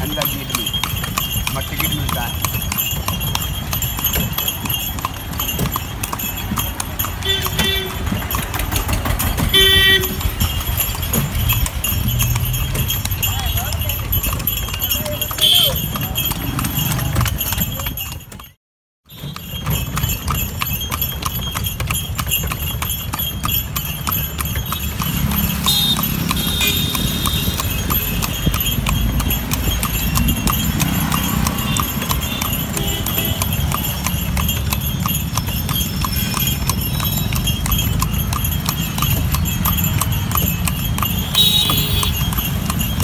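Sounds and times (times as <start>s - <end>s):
cart rumbling: 0.0s - 43.0s
hooves clip-clopping on pavement: 0.0s - 43.0s
street traffic: 0.0s - 43.0s.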